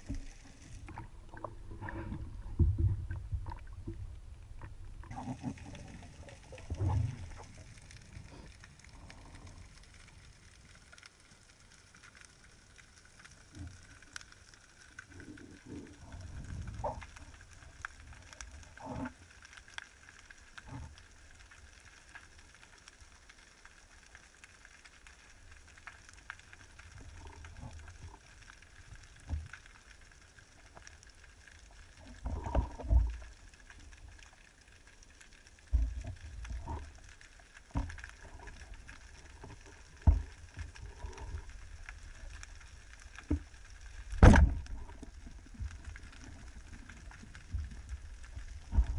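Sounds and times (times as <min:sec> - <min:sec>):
faint underwater hiss: 0:00.0 - 0:22.9
low thumps against camera: 0:44.2 - 0:44.7.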